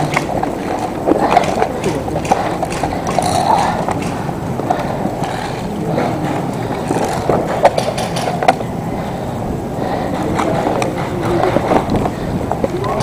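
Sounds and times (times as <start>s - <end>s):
sharp clicks: 0.0s - 5.6s.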